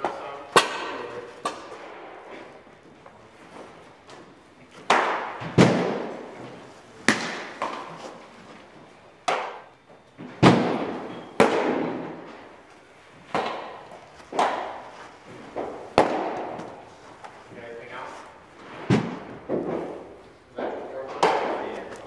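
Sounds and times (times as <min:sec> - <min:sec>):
baseballs smacking into mitts: 0:04.1 - 0:06.3, 0:07.0 - 0:08.2, 0:09.2 - 0:12.3, 0:13.3 - 0:17.4, 0:18.6 - 0:22.0.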